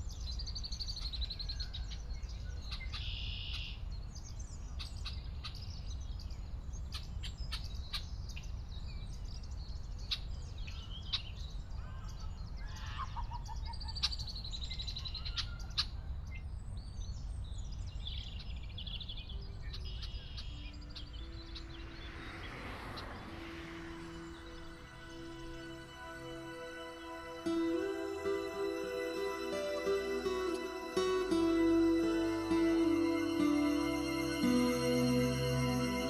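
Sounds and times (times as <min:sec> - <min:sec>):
songbirds chirping and trilling: 0:00.0 - 0:36.0
low outdoor rumble: 0:19.2 - 0:29.5
low held music notes: 0:20.4 - 0:36.0.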